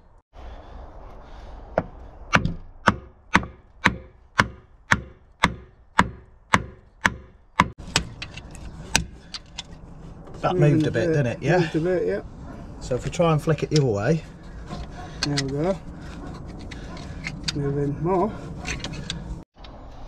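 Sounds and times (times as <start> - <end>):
hammer blows on wooden post: 2.3 - 8.0.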